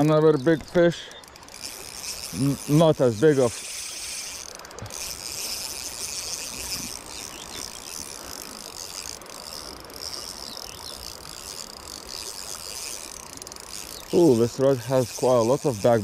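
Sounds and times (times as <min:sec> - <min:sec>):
fishing reel ticking: 0:00.0 - 0:16.0.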